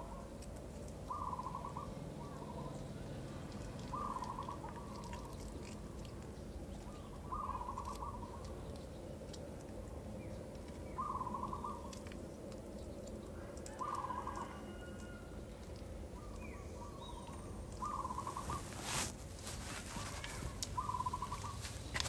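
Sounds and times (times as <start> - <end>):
low steady background noise: 0.0 - 22.0
bird trilling call: 1.1 - 2.8, 3.9 - 4.9, 11.0 - 11.9, 17.8 - 18.9, 20.8 - 21.7.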